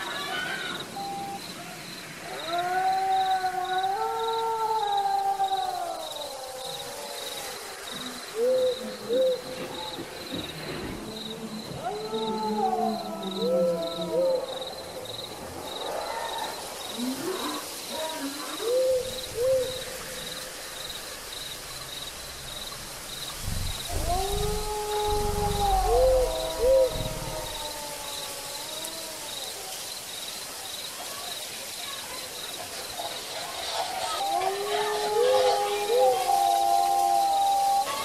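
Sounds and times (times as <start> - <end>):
low rumbling thumps: 22.7 - 27.7
hooting sliding tones: 23.4 - 27.7.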